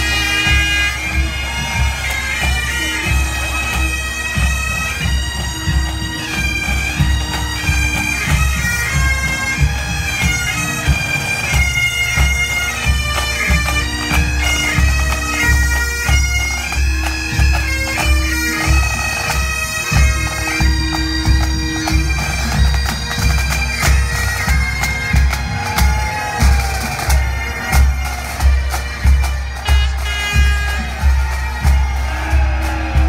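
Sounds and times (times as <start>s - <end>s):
bagpipes playing a march: 0.0s - 33.0s
bass drum beat: 29.6s - 33.0s.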